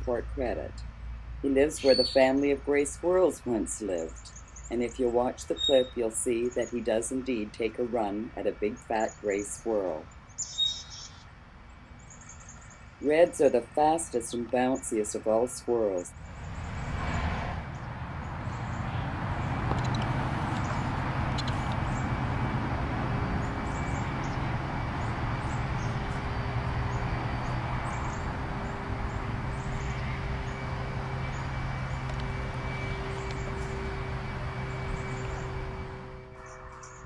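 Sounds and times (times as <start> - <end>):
low mechanical hum: 0.0 - 37.0
broad rushing noise: 16.1 - 37.0
faint high whine: 21.4 - 37.0.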